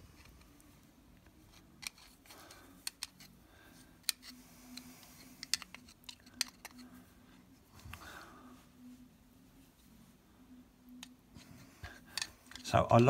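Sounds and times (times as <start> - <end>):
screwdriver clicking and scraping metal: 1.5 - 3.4, 4.0 - 6.9, 11.8 - 13.0.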